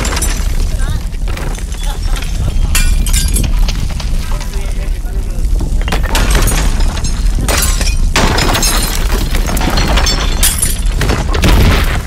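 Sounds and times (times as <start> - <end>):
debris crashing: 0.0 - 12.0
deep earthquake rumble: 0.0 - 12.0.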